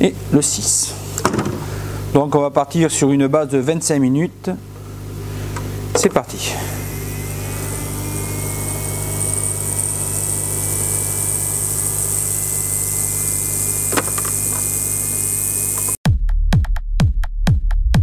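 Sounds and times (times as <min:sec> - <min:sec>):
ultrasonic cleaner hissing and humming: 0:04.7 - 0:16.0.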